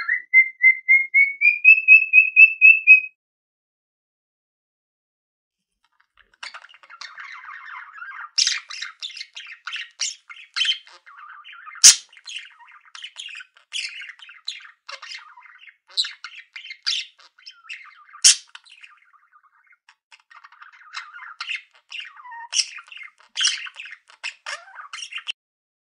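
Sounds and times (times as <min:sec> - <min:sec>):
budgerigar chirps: 0:00.0 - 0:03.1, 0:06.3 - 0:25.4
budgerigar squawks: 0:06.4 - 0:18.6.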